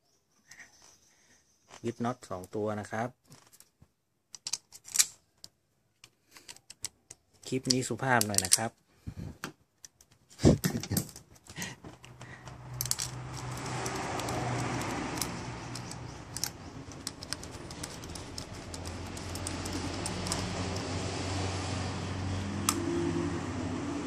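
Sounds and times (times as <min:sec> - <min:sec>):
socket clicking against metal: 0:12.0 - 0:20.9.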